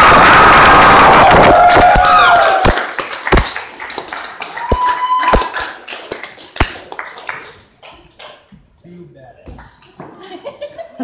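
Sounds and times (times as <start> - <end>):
concert crowd noise: 0.0 - 3.8
sharp claps: 0.0 - 8.5.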